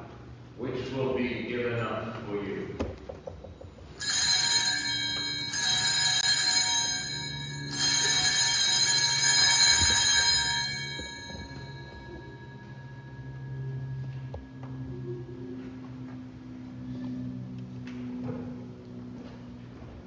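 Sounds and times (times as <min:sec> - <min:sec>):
altar bells ringing: 0:03.8 - 0:16.6.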